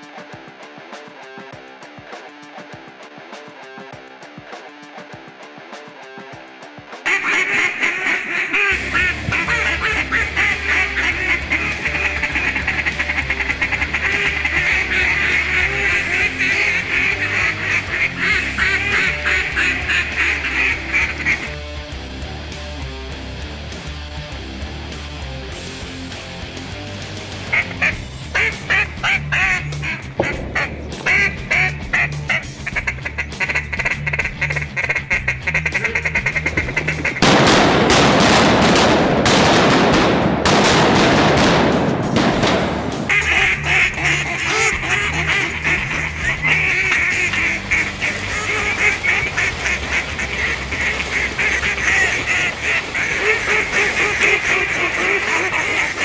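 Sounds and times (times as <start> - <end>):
background music with bass: 0.0 - 56.0
duck call quacking: 7.1 - 21.6, 27.5 - 39.7, 42.2 - 56.0.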